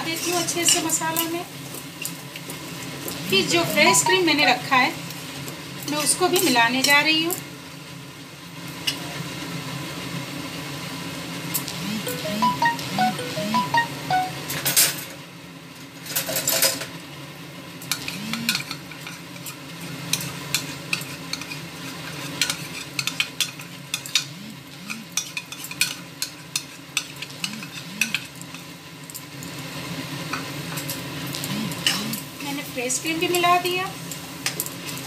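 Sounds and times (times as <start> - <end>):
low sizzle from a pan: 0.0 - 35.0
metal spoon scraping a bowl: 26.6 - 28.3.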